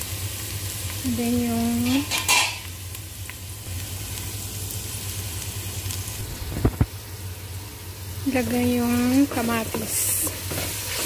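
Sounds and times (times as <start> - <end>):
onions sizzling in oil: 0.0 - 11.0.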